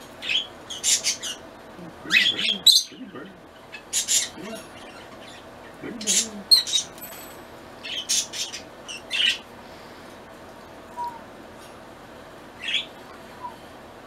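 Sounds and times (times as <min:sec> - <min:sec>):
cockatiels chirping: 0:00.2 - 0:01.4.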